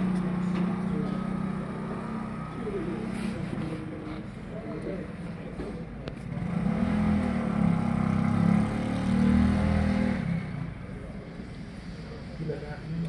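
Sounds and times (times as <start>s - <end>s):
motorcycle passing by: 0.0s - 3.4s, 6.3s - 11.0s.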